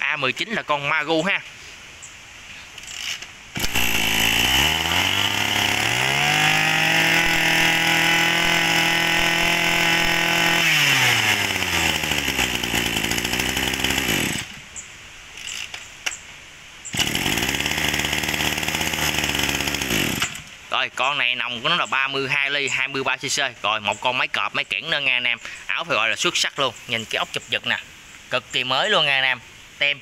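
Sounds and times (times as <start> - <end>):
brush cutter engine revving: 2.8 - 14.6, 16.9 - 20.6.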